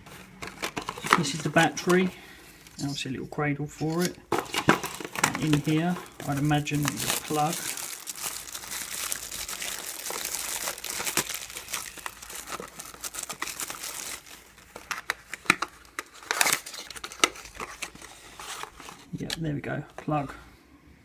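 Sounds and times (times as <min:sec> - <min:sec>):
plastic film crinkling: 0:00.0 - 0:02.1, 0:04.0 - 0:19.2.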